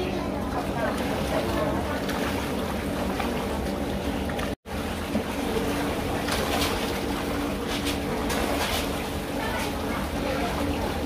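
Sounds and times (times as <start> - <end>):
motor hum: 0.0 - 11.0
running water: 0.0 - 11.0.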